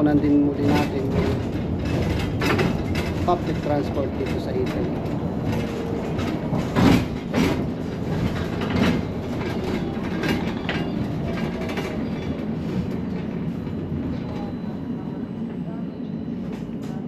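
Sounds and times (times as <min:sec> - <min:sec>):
bus rumble: 0:00.0 - 0:17.0
sharp knocks in bus cabin: 0:06.2 - 0:07.7.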